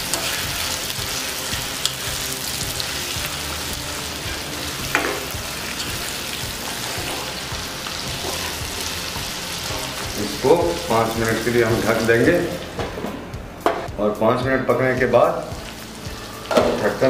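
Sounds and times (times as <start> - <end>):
spatula scraping pan: 0.0 - 2.1, 2.9 - 10.2
chicken sizzling in oil: 0.0 - 12.6, 15.3 - 17.0.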